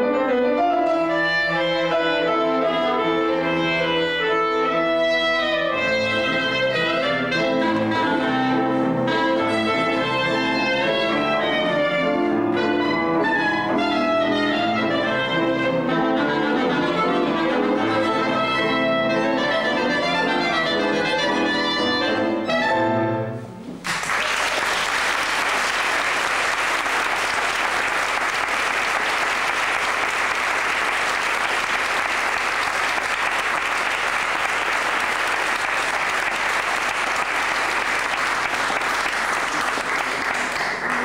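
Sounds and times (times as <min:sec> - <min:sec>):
clarinet and cello ensemble playing: 0:00.6 - 0:23.4
audience applause: 0:23.8 - 0:41.0.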